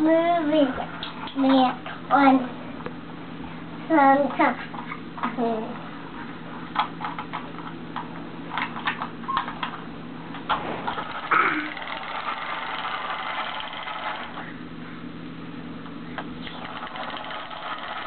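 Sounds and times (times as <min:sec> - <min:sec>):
toy engine buzzing whir: 0:10.9 - 0:14.5, 0:16.4 - 0:18.0.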